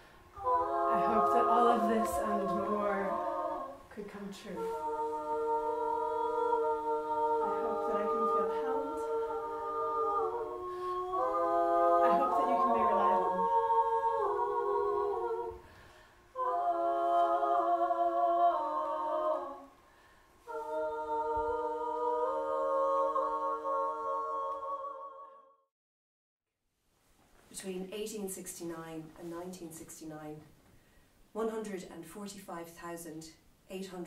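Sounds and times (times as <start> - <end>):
women singing a cappella chords: 0.0 - 25.5.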